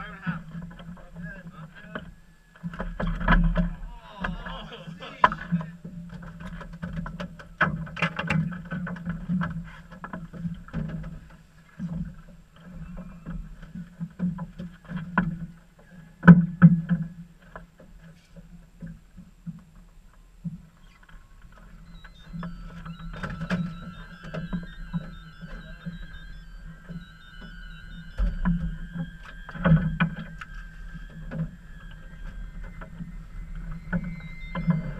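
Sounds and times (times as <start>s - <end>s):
faint high tone: 21.8s - 34.9s.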